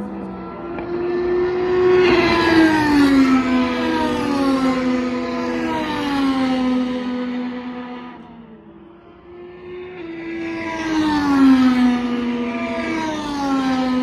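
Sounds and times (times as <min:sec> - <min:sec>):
race car engines passing: 0:00.0 - 0:14.0.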